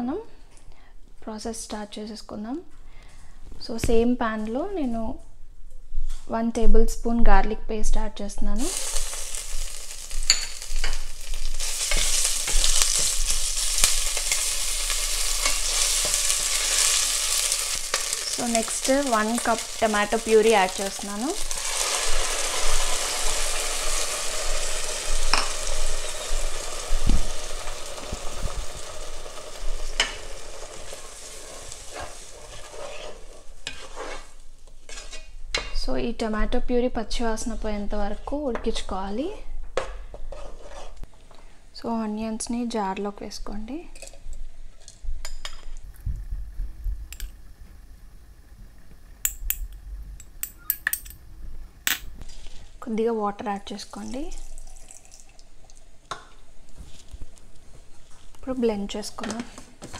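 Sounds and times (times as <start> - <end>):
wooden spatula stirring: 30.8 - 35.7, 40.1 - 41.4
metal spoon scraping enamel bowl: 32.0 - 35.7, 40.2 - 41.0.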